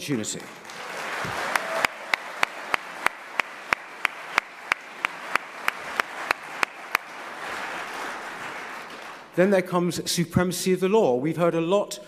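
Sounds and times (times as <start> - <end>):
audience applauding: 0.2 - 9.4
loud evenly spaced claps: 0.3 - 9.4.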